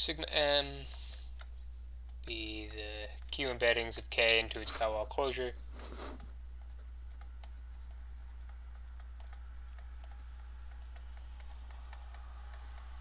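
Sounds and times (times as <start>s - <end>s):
low electrical hum: 0.0s - 13.0s
stylus tapping on screen: 6.0s - 13.0s.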